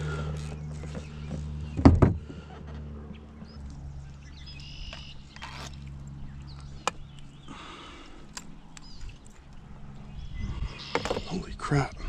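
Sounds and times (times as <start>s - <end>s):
clicks and knocks in kayak: 10.8s - 11.4s.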